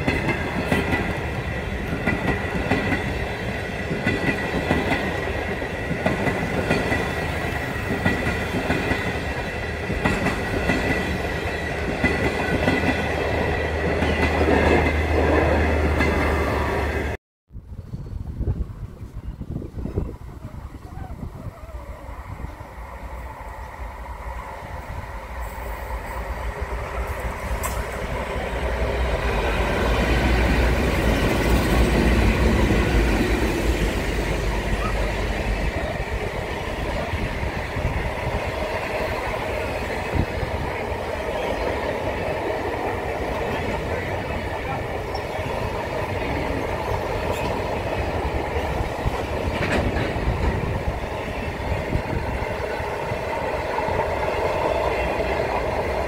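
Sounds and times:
diesel locomotive engine rumble: 0:00.0 - 0:56.0
wheels clicking over rail joints: 0:42.5 - 0:51.2.

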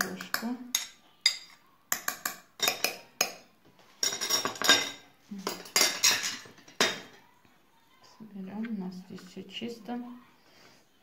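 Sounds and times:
metal spoon clinking on glass: 0:00.0 - 0:03.4, 0:04.0 - 0:07.1.

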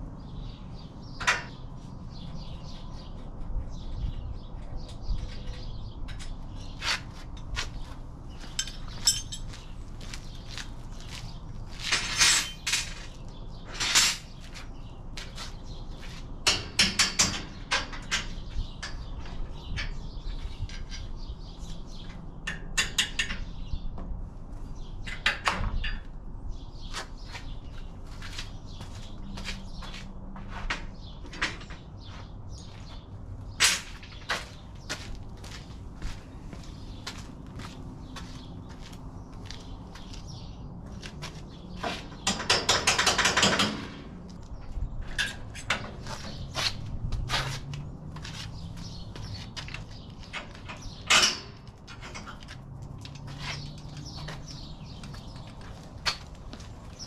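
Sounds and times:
birds chirping: 0:00.0 - 0:16.8, 0:17.4 - 0:43.6, 0:44.3 - 0:57.0
hand tools clanking on metal: 0:08.5 - 0:09.7, 0:11.9 - 0:13.1, 0:41.8 - 0:44.0, 0:50.3 - 0:54.4.

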